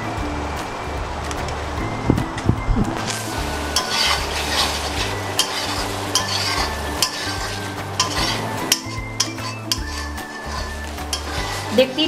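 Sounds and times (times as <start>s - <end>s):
low sizzle: 0.0s - 12.0s
spatula scraping a pan: 3.7s - 12.0s.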